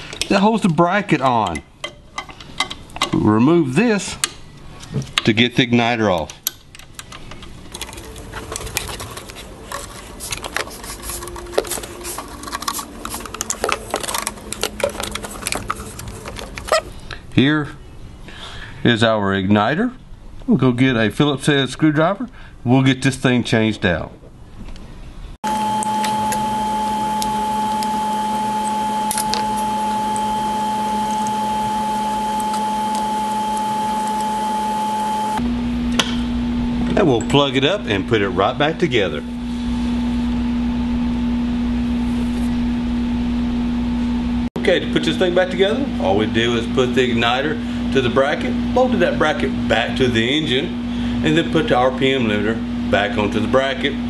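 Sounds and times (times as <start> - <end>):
machine hum with whine: 6.7 - 18.7, 24.3 - 54.0.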